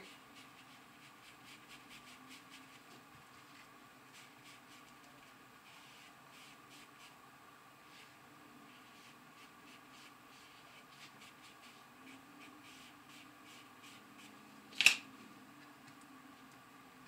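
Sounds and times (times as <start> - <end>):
scratchy brush strokes: 0.0 - 7.2, 7.8 - 14.6.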